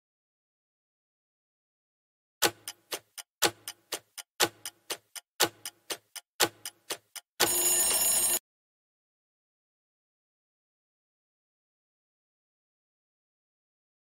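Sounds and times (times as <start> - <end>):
clock ticking: 2.4 - 8.4
alarm buzz: 7.4 - 8.4.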